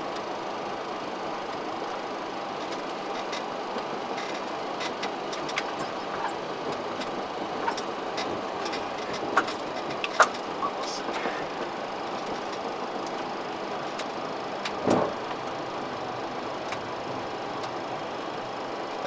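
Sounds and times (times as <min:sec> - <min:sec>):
rushing cockpit noise: 0:04.1 - 0:18.0.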